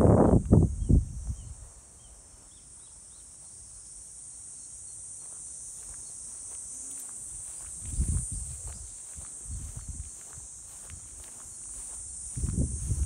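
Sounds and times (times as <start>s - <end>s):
wind rumble on microphone: 0.0s - 1.8s, 7.4s - 13.0s
insects chirring: 0.0s - 13.0s.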